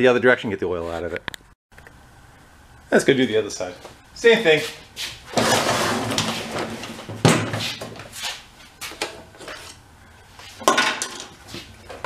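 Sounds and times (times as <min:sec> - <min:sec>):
lawn mower knocking and scraping: 0:05.3 - 0:07.6.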